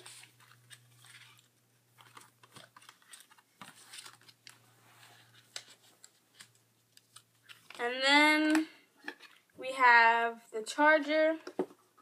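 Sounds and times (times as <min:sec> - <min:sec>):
packet clicks and rustles: 0:00.0 - 0:09.5.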